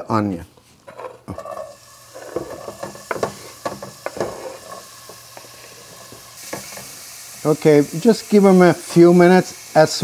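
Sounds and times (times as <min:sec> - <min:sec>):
onion sizzling in oil: 0:01.3 - 0:10.0
utensil knocking against pan: 0:02.4 - 0:04.4.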